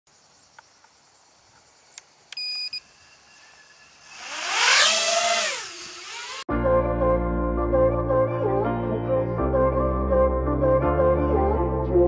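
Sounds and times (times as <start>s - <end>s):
short electronic beep: 2.4s - 2.9s
drone motors whining: 2.4s - 6.5s.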